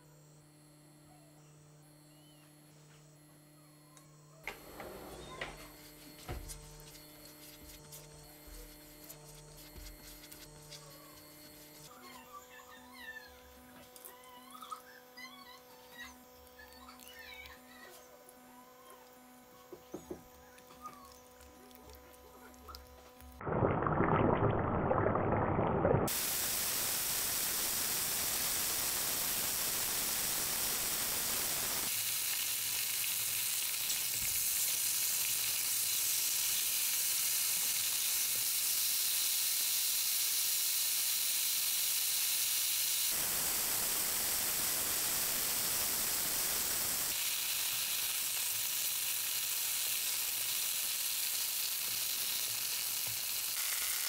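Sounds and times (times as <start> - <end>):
chicken sizzling in hot oil: 26.1 - 54.0.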